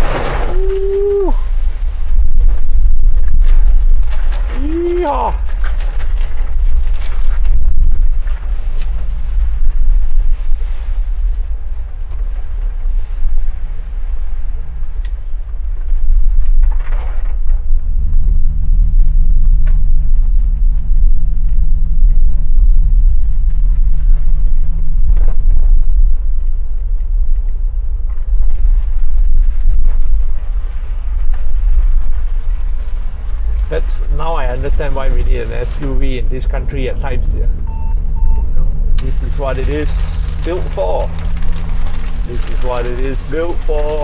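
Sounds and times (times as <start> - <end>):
deep road rumble in car: 0.0 - 44.0
engine and drivetrain drone: 11.2 - 44.0.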